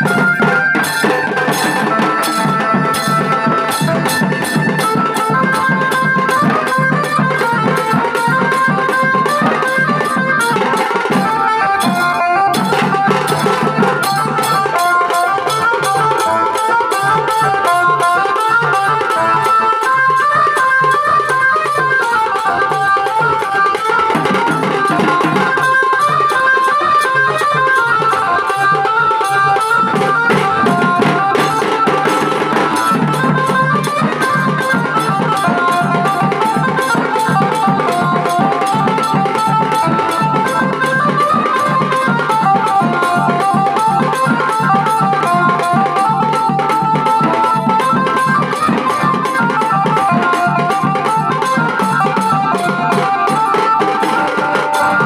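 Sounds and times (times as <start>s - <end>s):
melody line over drums: 27.6s - 55.0s
fast dense drumming: 29.8s - 40.4s.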